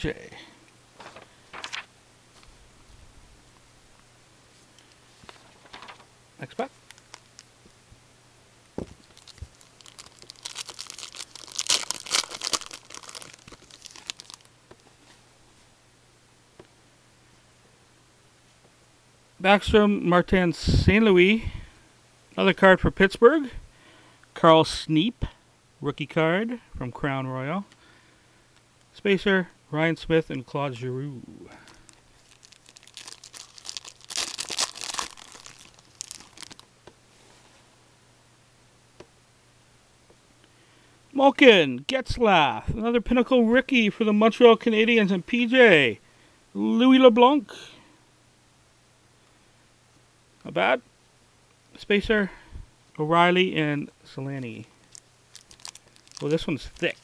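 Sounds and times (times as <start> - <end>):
wrapper tearing and crinkling: 1.1 - 1.9, 6.8 - 7.5, 9.0 - 14.5, 31.7 - 36.7, 54.8 - 57.0.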